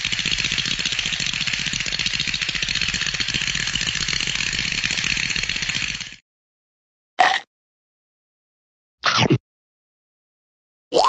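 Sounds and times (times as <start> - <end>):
fast mechanical rattle: 0.0 - 6.2.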